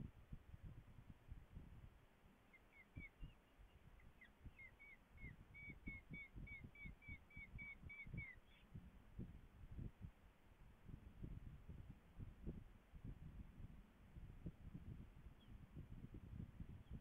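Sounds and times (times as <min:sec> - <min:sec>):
nestling begging chirps: 0:02.5 - 0:08.6.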